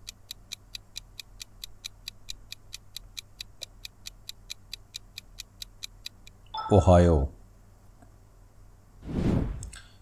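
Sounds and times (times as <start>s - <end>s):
fast clock-like ticking: 0.0s - 6.4s.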